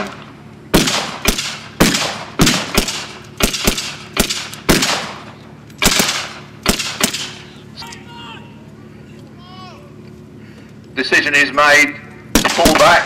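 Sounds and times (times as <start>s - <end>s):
rifle blank shots echoing: 0.7s - 7.4s, 12.3s - 13.0s.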